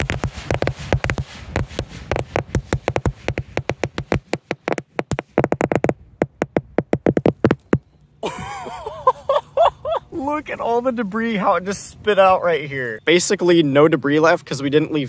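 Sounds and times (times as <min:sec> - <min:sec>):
firecrackers going off: 0:00.0 - 0:05.4.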